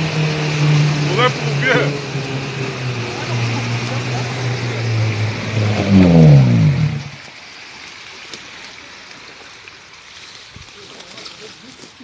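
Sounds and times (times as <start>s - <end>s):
small engine running: 0.0s - 7.2s.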